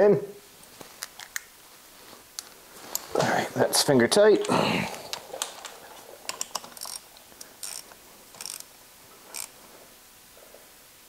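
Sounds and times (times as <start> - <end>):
socket ratchet clicking: 6.3 - 8.7, 9.3 - 9.6.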